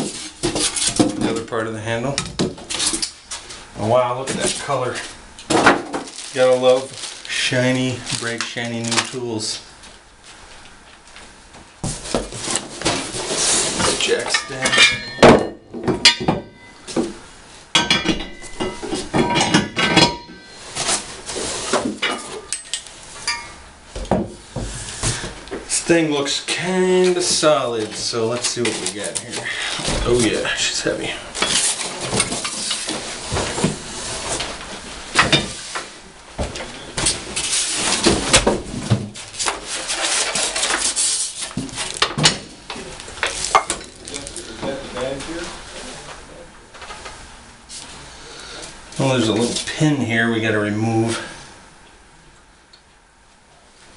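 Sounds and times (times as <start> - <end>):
cardboard and foam rustling: 3.8 - 10.5, 11.8 - 14.6, 20.6 - 22.0, 26.7 - 35.7, 36.4 - 42.0
cardboard scraping and rustling: 11.8 - 14.2, 20.6 - 22.0
metal knocks and clanks: 13.8 - 17.2, 17.8 - 20.5
metal jack stands clanking: 13.9 - 16.7.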